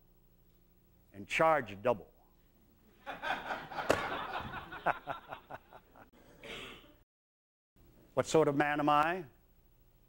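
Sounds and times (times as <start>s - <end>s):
audience laughing: 3.0s - 6.4s.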